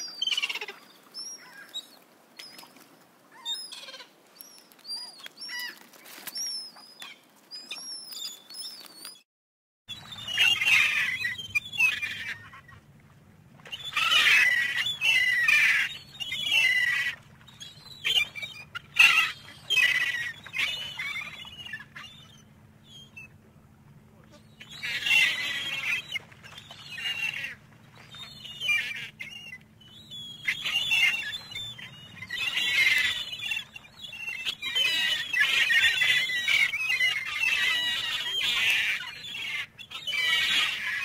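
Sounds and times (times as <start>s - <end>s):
gulls calling: 0.0s - 9.1s, 9.9s - 41.0s
steady low hum: 17.1s - 26.9s.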